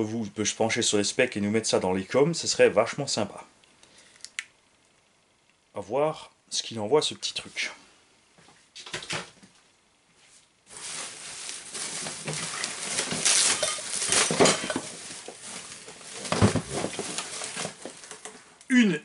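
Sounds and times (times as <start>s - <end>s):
packing material crinkling: 10.7s - 18.6s
parts knocking in box: 11.8s - 15.3s, 16.1s - 18.1s.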